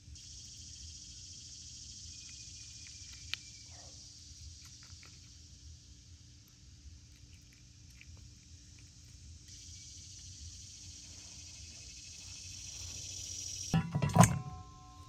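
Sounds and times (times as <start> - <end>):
insect chorus buzzing: 0.0 - 15.0.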